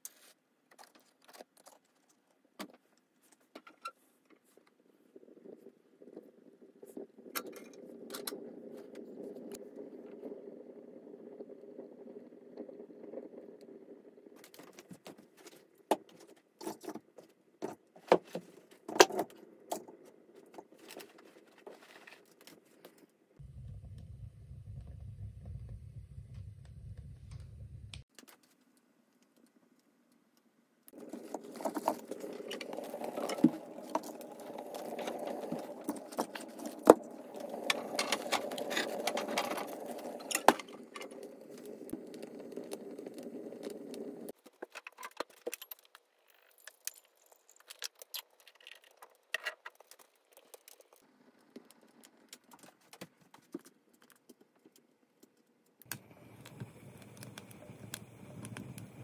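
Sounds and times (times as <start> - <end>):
fire crackling: 30.9 - 44.4, 55.8 - 59.0.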